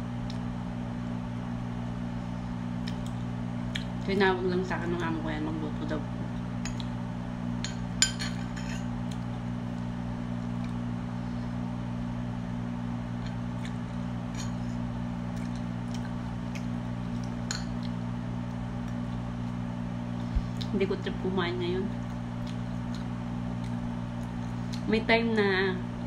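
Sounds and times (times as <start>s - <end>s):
low hum: 0.0s - 26.0s.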